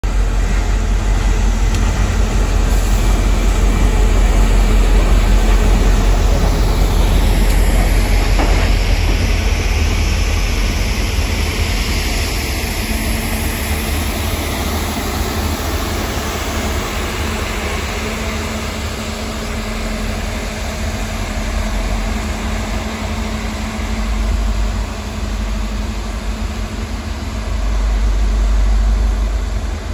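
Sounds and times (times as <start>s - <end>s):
diesel locomotive rumbling: 0.0s - 29.9s
tank cars rolling: 1.7s - 11.7s.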